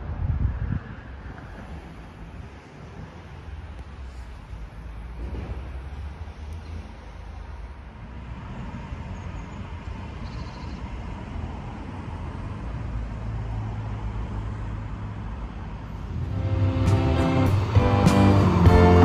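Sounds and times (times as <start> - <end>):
vehicle rumble: 0.0 - 19.0
low hum: 15.9 - 19.0.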